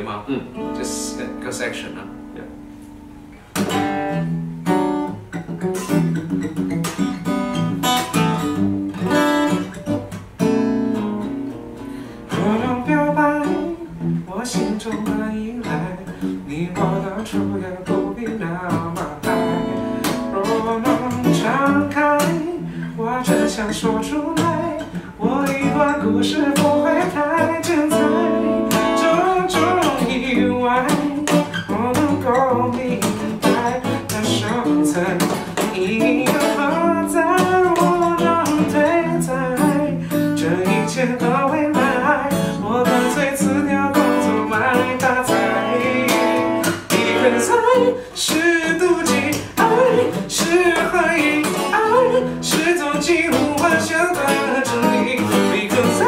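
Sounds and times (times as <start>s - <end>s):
acoustic guitar strumming: 0.0s - 56.0s
two men singing a pop ballad: 20.3s - 56.0s.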